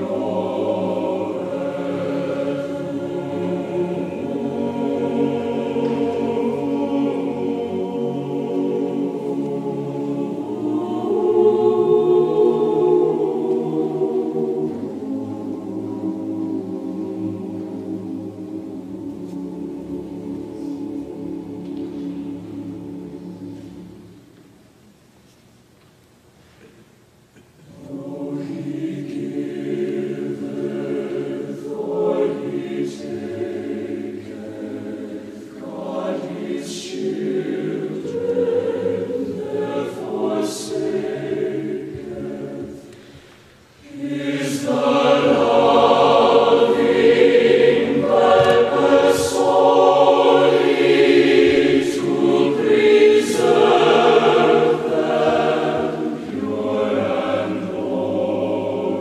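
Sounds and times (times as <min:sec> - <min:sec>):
choir singing a hymn: 0:00.0 - 0:24.6, 0:27.6 - 0:59.0.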